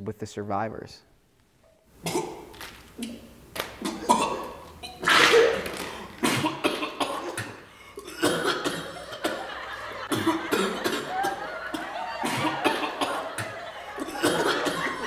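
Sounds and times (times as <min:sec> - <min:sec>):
man coughing hard: 0:02.0 - 0:02.4, 0:03.8 - 0:05.6, 0:06.2 - 0:09.5, 0:10.1 - 0:15.0.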